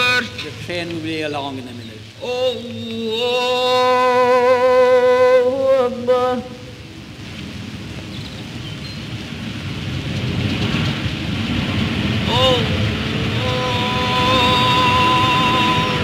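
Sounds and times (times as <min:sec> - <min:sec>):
man chanting prayer: 0:00.0 - 0:06.7, 0:12.2 - 0:16.0
crackly hiss: 0:00.0 - 0:16.0.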